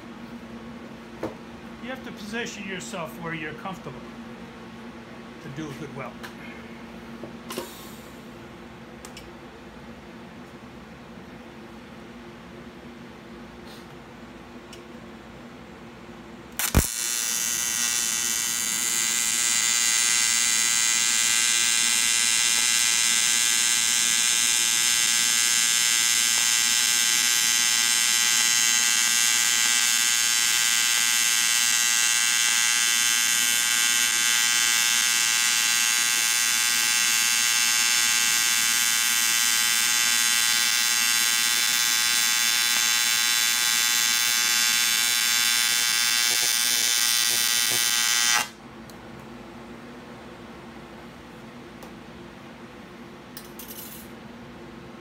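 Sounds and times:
welding arc buzzing: 16.5s - 48.6s.

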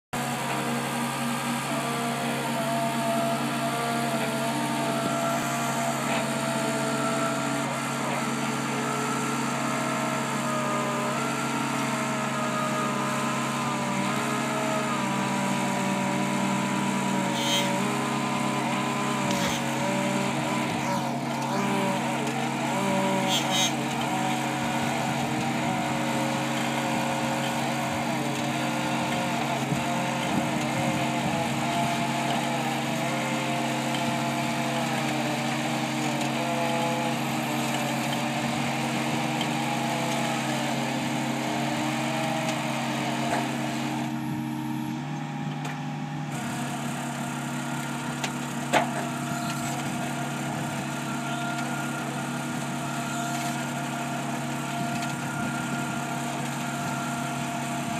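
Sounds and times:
diesel engine running: 0.0s - 57.9s
wavering higher hydraulic note: 0.2s - 29.7s.

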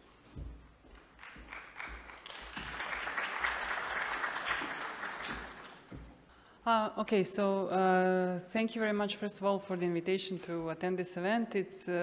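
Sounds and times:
audience applauding: 1.1s - 5.9s.

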